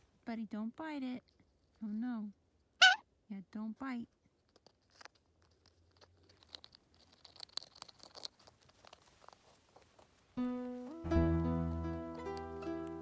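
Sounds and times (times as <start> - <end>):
parrot chewing with beak: 4.3 - 10.2.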